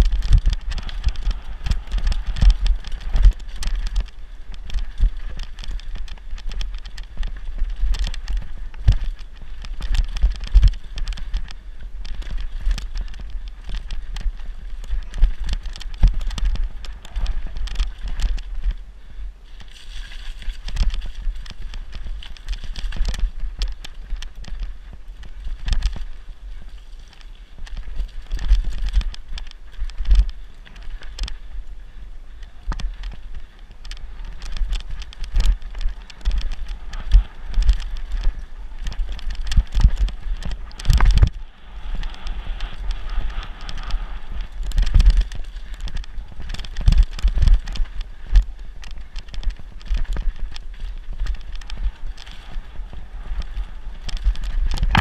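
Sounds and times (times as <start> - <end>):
bike clattering and rattling: 0.0 - 55.0
bike tyres on dirt: 0.0 - 55.0
wind rumble on microphone: 0.0 - 55.0.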